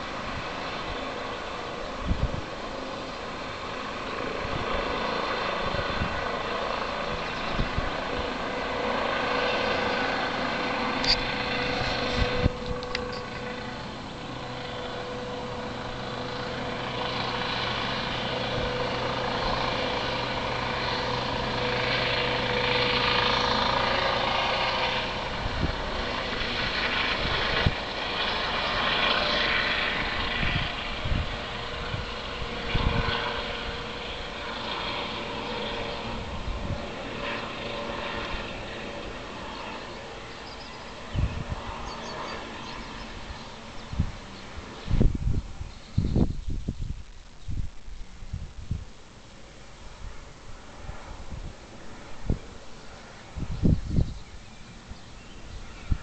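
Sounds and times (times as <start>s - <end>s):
helicopter rotor and turbine hum: 0.0s - 56.0s.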